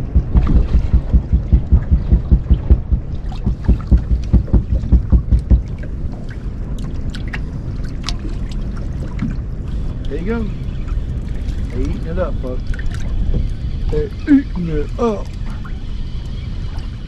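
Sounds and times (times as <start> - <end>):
waves slapping against boat hull: 0.0 - 10.2, 11.2 - 14.0
low rumble: 0.0 - 17.0.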